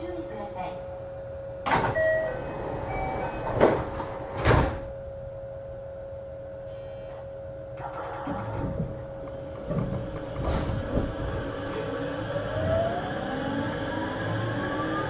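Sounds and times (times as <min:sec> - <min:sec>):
train car hum: 0:00.0 - 0:15.0
train doors sliding shut: 0:01.7 - 0:04.8, 0:07.8 - 0:12.8
sharp knocks: 0:08.6 - 0:11.1.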